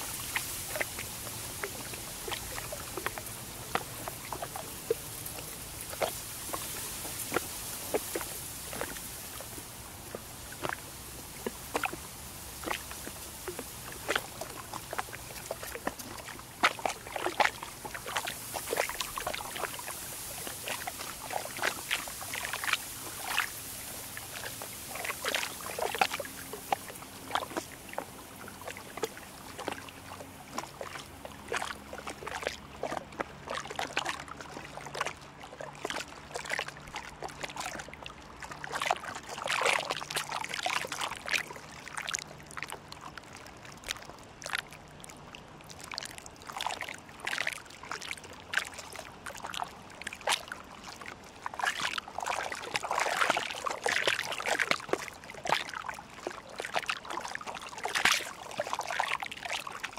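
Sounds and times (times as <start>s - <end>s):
low steady hum: 0.0s - 59.9s
water lapping and trickling: 0.0s - 59.9s.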